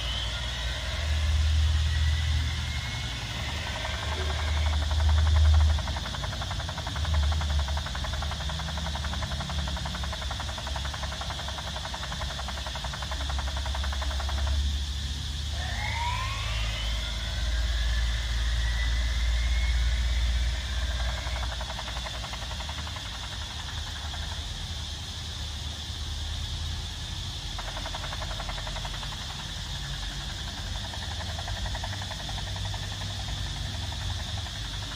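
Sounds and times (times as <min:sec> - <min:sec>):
electronic siren sweeps: 0:00.0 - 0:05.4, 0:15.3 - 0:21.7
toy helicopter whirr: 0:00.0 - 0:34.9.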